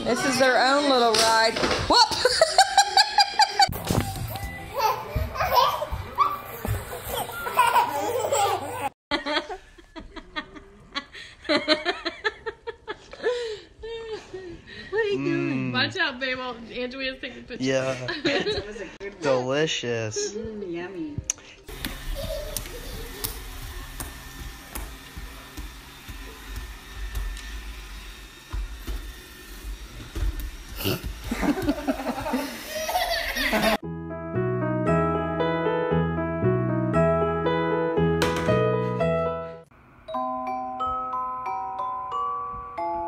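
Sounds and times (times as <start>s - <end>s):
toddlers laughing: 2.2s - 3.8s, 4.7s - 9.6s, 21.8s - 23.9s, 30.8s - 33.8s
robot vacuum motor hum: 21.7s - 33.5s.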